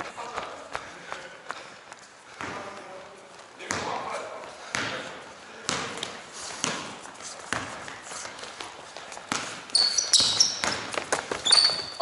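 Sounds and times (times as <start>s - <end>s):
basketball bouncing on gym floor: 2.3s - 2.8s, 3.6s - 8.0s, 8.6s - 12.0s
sneakers squeaking on court: 3.6s - 12.0s.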